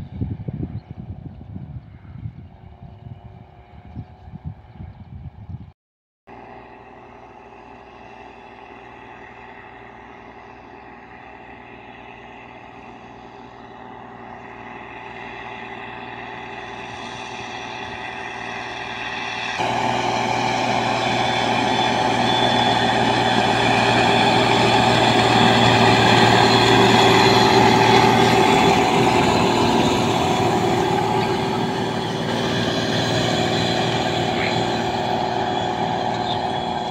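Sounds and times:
tractor diesel engine running: 6.3s - 36.9s.

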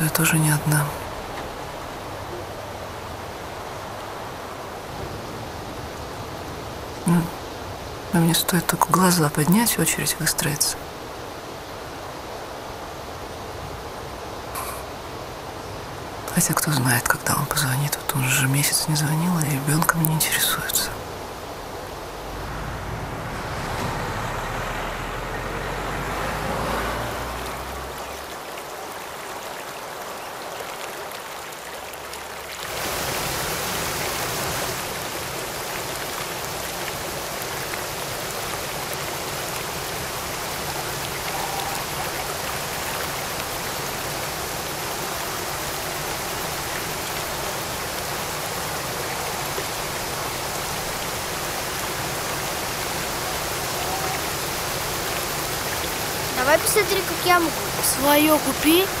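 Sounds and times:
water rushing over weir: 0.0s - 59.0s
low rumble: 21.6s - 26.4s.

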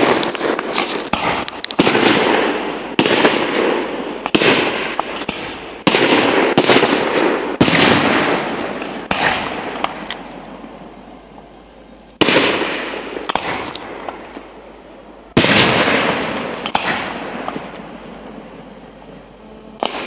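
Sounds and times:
firework pops and crackles: 0.0s - 10.7s, 12.1s - 14.6s, 15.3s - 17.9s, 19.8s - 20.0s
firework shells bursting: 0.0s - 10.7s, 12.2s - 14.5s.

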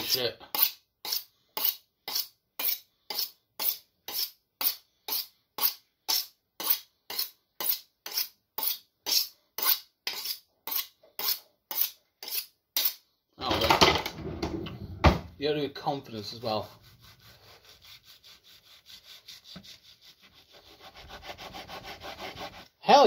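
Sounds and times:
knife scraping on sharpening rod: 0.0s - 13.0s.

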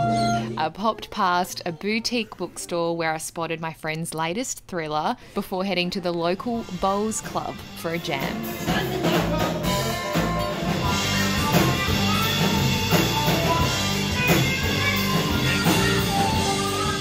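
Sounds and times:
bass guitar: 0.0s - 0.6s, 6.8s - 17.0s
drum kit beat: 6.6s - 17.0s
electric guitars: 6.8s - 17.0s.

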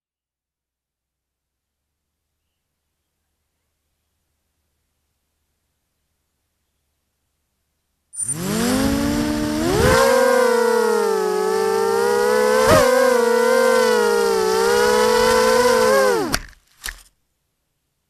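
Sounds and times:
quadcopter motors whining: 8.2s - 16.5s.

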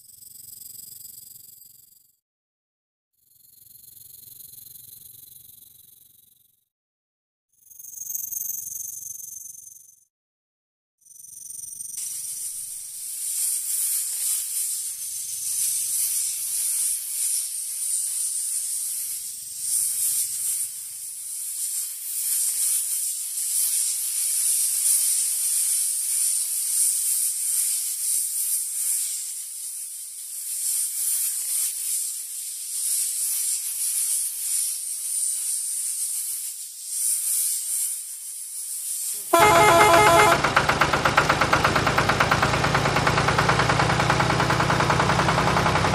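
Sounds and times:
high-pitched hiss: 12.0s - 40.5s.

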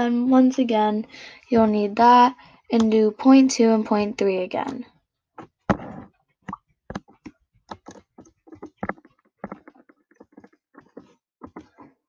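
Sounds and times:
computer keyboard typing: 6.9s - 11.8s.

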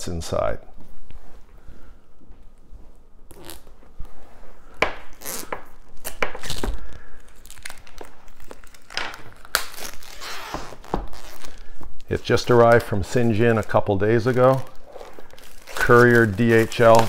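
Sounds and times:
shrink wrap crinkling: 3.3s - 17.0s.

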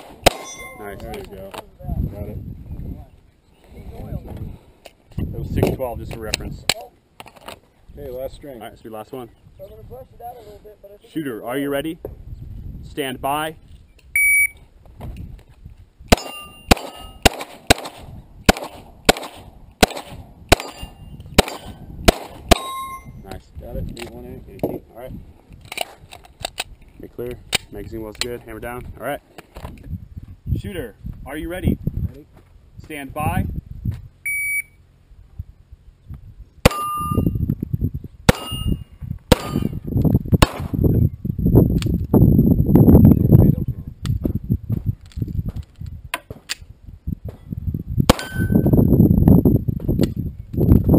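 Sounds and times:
pistol shots: 0.0s - 0.8s, 16.1s - 23.0s, 38.3s - 38.7s, 39.3s - 39.8s, 40.4s - 40.8s, 48.1s - 48.6s
steel plate ringing: 0.3s - 0.9s, 16.2s - 17.2s, 22.5s - 23.2s, 36.7s - 37.3s, 38.3s - 38.8s
shot timer beep: 14.2s - 14.6s, 34.3s - 34.8s.

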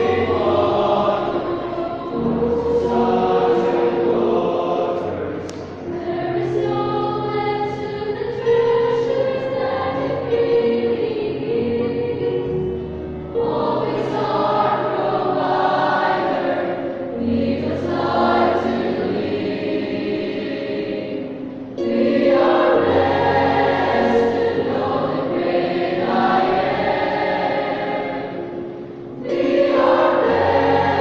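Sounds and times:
choir singing in parts: 0.0s - 31.0s.

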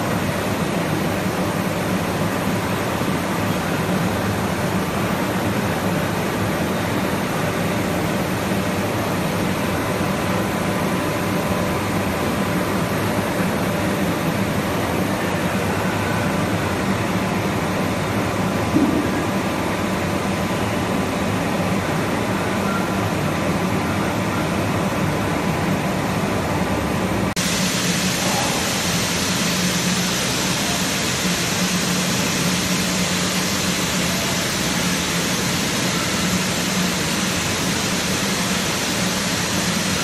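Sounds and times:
milling machine humming: 27.4s - 40.0s.

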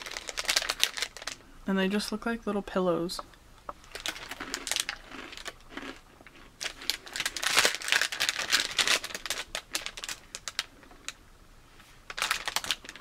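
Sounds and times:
plastic snack bag crinkling: 0.0s - 1.4s, 3.8s - 11.2s, 12.1s - 13.0s.

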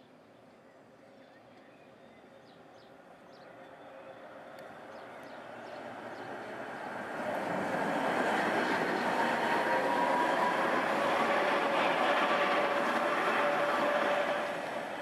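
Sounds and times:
tram wheels rolling on rails: 4.3s - 15.0s.

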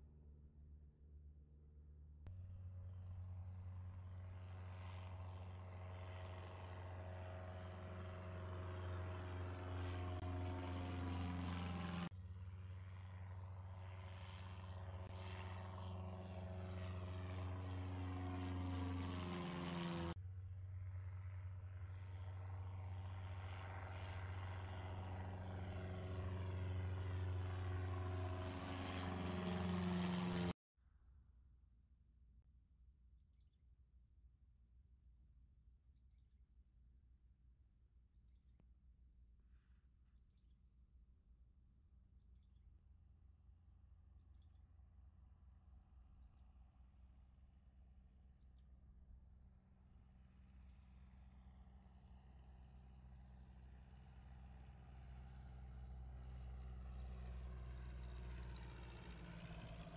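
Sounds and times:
propeller plane engine droning: 0.0s - 30.6s, 43.4s - 59.9s.

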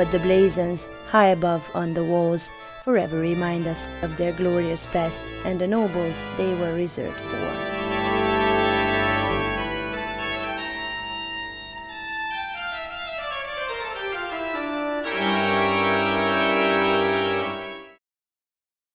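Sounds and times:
music of long held chords: 0.0s - 18.0s
tone gliding downward: 4.2s - 17.6s.

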